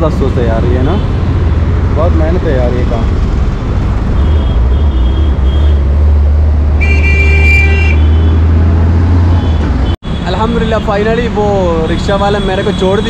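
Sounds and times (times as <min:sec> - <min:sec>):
street traffic rumble: 0:00.0 - 0:13.0
vehicle horn honking: 0:04.2 - 0:05.8, 0:06.8 - 0:08.5.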